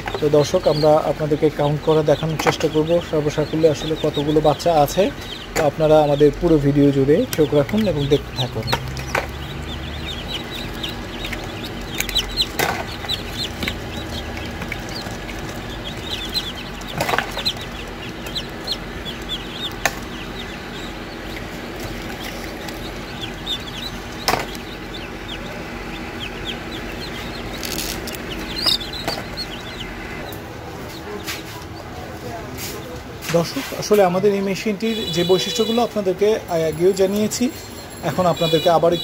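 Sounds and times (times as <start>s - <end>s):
steady low hum: 0.0s - 33.2s
chicks peeping: 0.0s - 39.0s
sharp taps: 8.6s - 29.9s.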